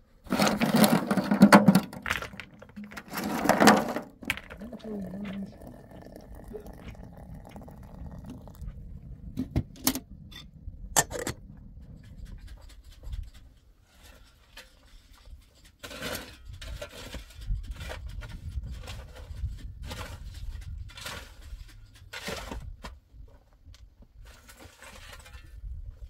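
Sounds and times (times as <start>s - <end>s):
shovel scraping wet mortar: 0.2s - 4.6s, 13.2s - 22.8s
water pouring into metal teapot: 4.6s - 9.0s.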